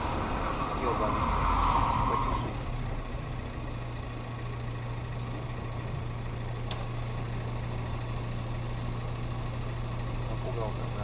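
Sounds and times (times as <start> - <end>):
car engine and cabin hum: 0.0 - 11.0.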